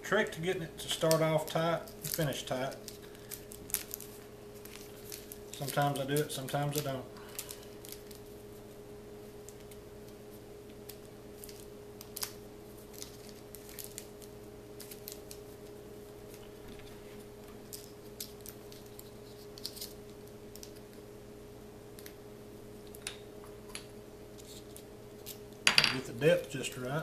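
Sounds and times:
steady low hum: 0.0s - 27.0s
paper rustling: 2.0s - 6.8s, 12.2s - 15.6s, 16.3s - 20.8s.

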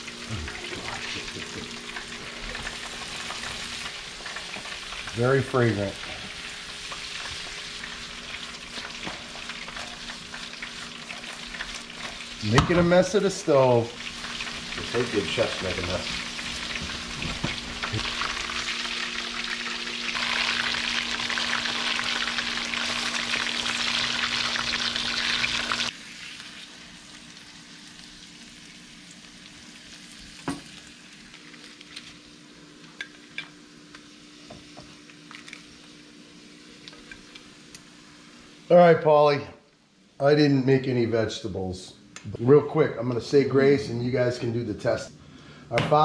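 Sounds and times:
food sizzling in skillet: 0.0s - 32.5s
faint steady hum: 0.0s - 46.0s.

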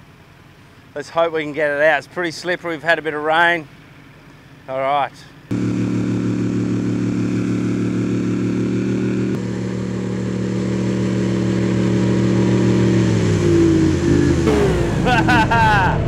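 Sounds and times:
vehicle engines under load: 9.3s - 16.0s.

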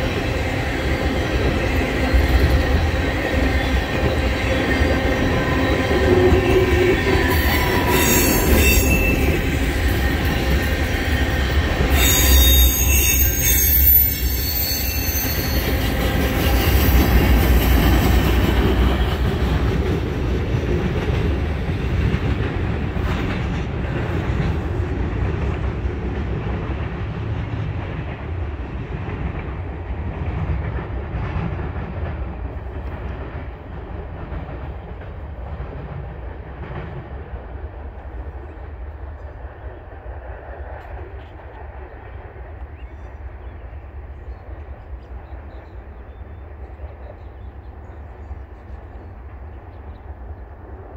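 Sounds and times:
train wheels rumbling on rails: 0.0s - 50.9s
high wheel squeal: 3.6s - 10.0s, 11.2s - 17.0s.

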